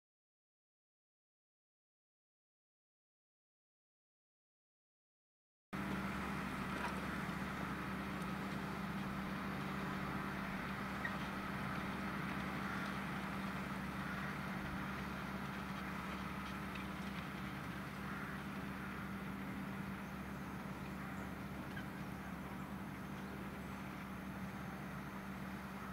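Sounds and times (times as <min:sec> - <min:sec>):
tractor diesel engine under load: 0:05.8 - 0:25.9.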